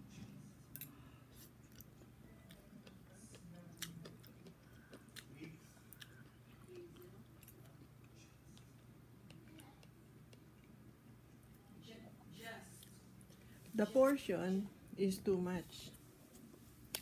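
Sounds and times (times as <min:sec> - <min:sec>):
chewing: 0:00.7 - 0:11.6.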